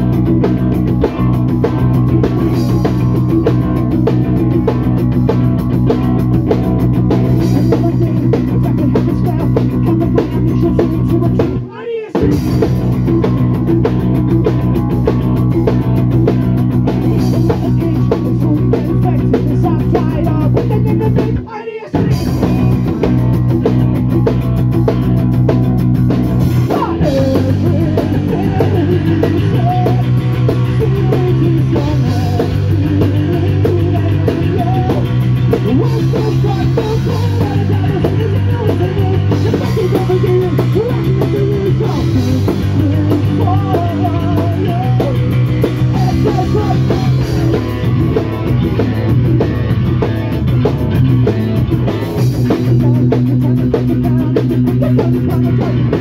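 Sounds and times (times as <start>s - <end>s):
bass guitar: 0.0s - 56.0s
drum kit: 0.0s - 56.0s
electric guitar: 0.0s - 56.0s
man singing: 6.4s - 24.5s, 26.5s - 48.0s, 52.2s - 56.0s.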